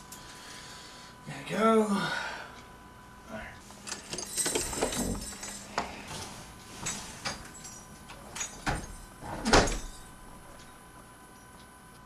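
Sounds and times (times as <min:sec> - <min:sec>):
closet door shutting: 0:08.1 - 0:10.0.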